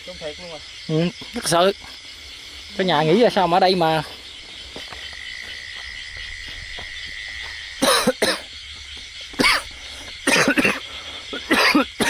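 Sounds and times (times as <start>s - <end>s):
insects chirring: 0.0s - 12.0s
person coughing harshly: 7.8s - 8.5s, 9.4s - 12.0s.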